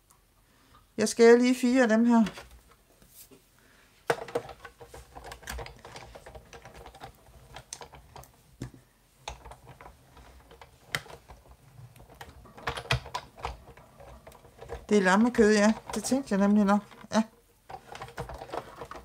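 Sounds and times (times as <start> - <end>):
hand-cranked cutting machine rolling: 4.2 - 8.3, 9.3 - 19.0.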